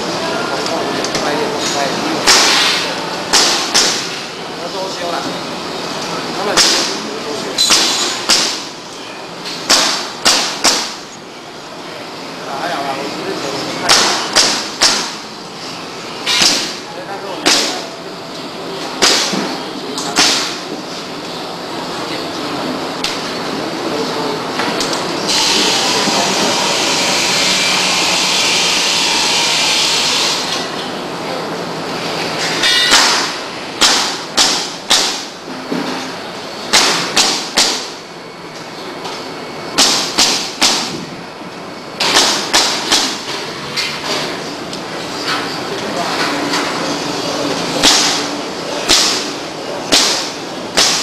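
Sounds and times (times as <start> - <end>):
loud steady high hiss: 0.0 - 35.5
factory background din: 0.0 - 51.0
nail gun firing into wood: 9.7 - 11.0, 13.9 - 15.2, 32.9 - 35.2, 36.7 - 37.9, 39.8 - 41.0, 42.0 - 43.2, 47.8 - 48.2, 49.9 - 51.0.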